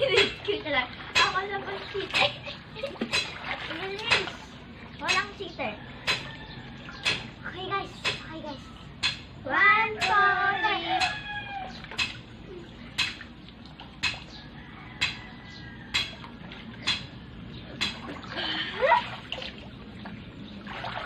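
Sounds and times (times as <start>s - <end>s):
water splashing: 0.0s - 5.5s, 17.8s - 21.0s.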